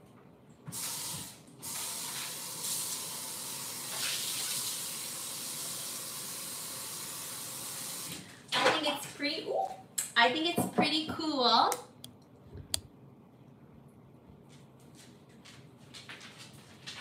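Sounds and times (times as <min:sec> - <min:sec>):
faucet water spraying: 0:00.7 - 0:08.2.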